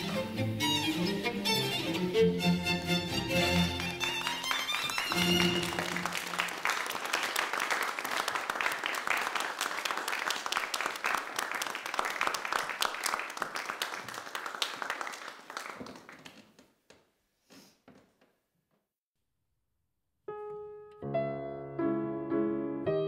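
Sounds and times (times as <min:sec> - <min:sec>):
audience applauding: 0:03.4 - 0:16.7.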